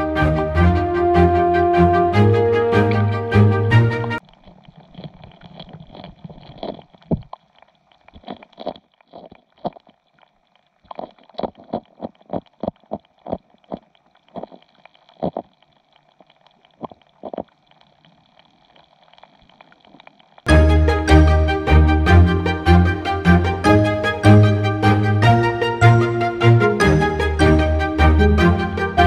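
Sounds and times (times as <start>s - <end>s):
fish chewing clicks underwater: 4.2s - 20.5s.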